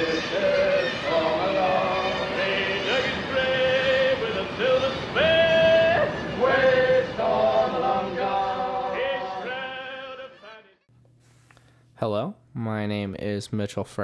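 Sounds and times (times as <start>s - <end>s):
men singing a sea shanty: 0.0s - 10.9s.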